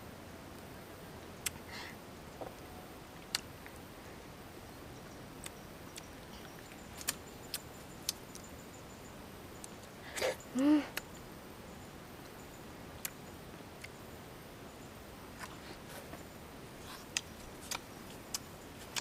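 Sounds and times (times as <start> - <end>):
faint background hiss: 0.0 - 19.0
fingers peeling fruit clicks: 17.1 - 19.0.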